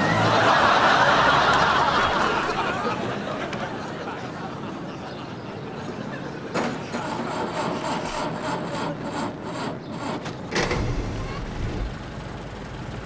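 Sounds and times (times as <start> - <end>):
street noise: 0.0 - 13.0
vehicle engine idling: 9.5 - 13.0.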